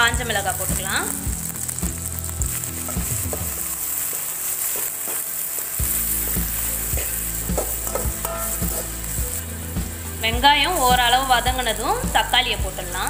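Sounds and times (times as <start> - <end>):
onions sizzling in oil: 0.0 - 13.0
spoon scraping pan: 2.5 - 11.0.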